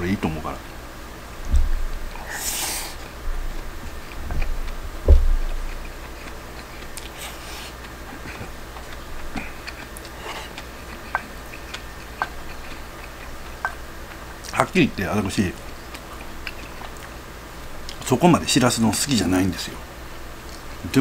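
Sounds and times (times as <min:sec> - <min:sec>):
low thumps: 0:01.2 - 0:02.4, 0:03.0 - 0:06.5
person chewing: 0:01.7 - 0:14.5, 0:15.6 - 0:17.2
short hiss: 0:02.3 - 0:03.0.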